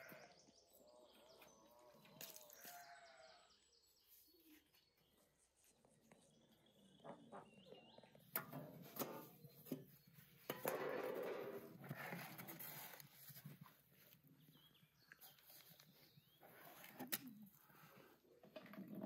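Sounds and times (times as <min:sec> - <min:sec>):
metal tray scraping oven floor: 0:10.6 - 0:12.3.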